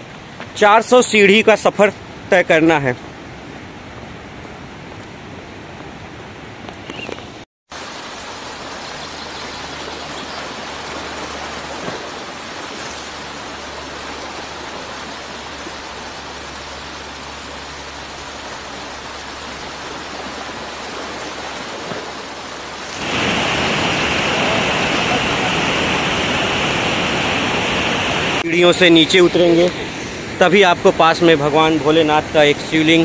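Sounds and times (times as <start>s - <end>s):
waterfall rushing over rocks: 7.7s - 30.4s.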